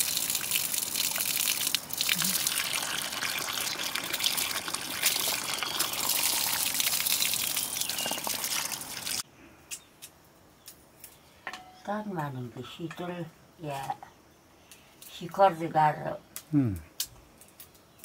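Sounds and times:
water splashing over metal bowl: 0.0s - 9.2s.

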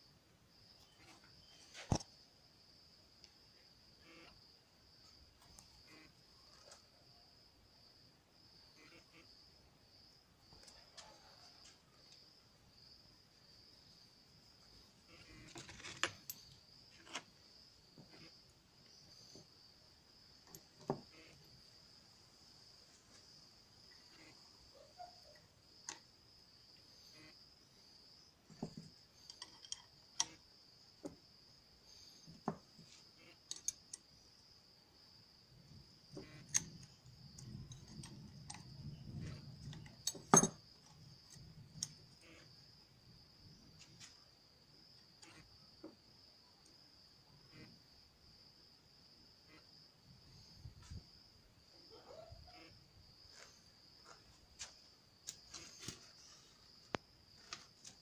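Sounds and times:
crickets chirring: 0.0s - 58.0s
metal tools clinking: 28.6s - 30.4s, 39.2s - 41.9s.

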